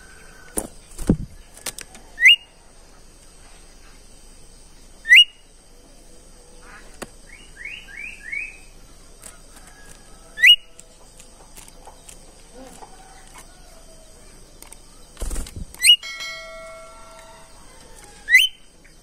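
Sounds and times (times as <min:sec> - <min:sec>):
bird calling rising whistles: 0:18.2 - 0:18.7.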